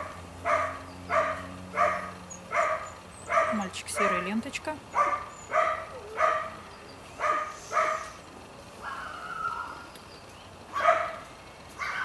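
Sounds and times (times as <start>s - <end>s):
dog barking: 0.4s - 4.3s, 4.9s - 6.6s, 7.2s - 8.2s, 10.7s - 12.0s
dog drawn-out high call: 5.0s - 6.6s, 8.8s - 9.8s, 11.8s - 12.0s.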